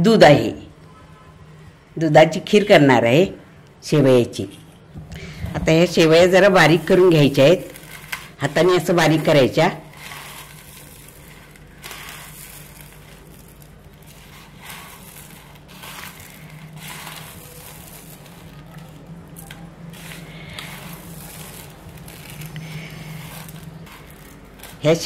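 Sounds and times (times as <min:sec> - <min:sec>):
dry noodles crackling as crushed: 0:05.2 - 0:25.0.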